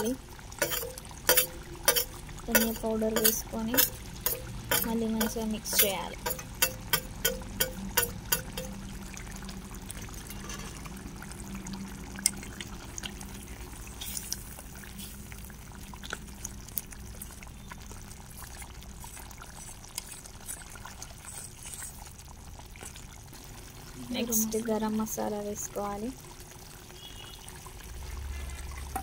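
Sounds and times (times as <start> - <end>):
metal spoon stirring: 0.0 - 8.8, 10.0 - 11.0
curry bubbling in pot: 0.0 - 29.0.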